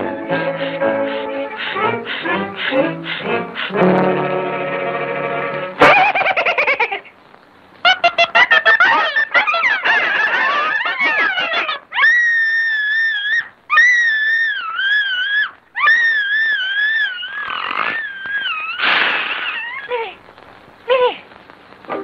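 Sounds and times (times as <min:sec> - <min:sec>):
rough noisy outbursts: 0:17.1 - 0:19.9.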